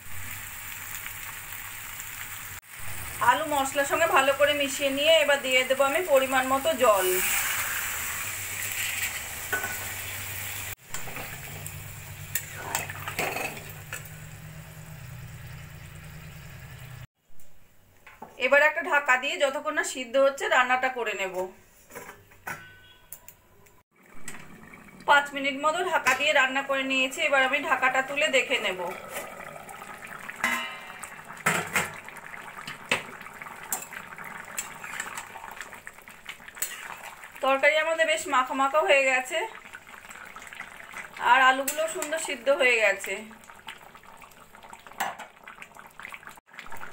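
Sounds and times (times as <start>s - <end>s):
curry sizzling in a wok: 0.0s - 17.1s, 25.7s - 46.9s
curry simmering and bubbling: 23.9s - 26.3s, 27.9s - 37.7s, 38.5s - 46.9s
spatula scraping a pan: 36.6s - 36.9s.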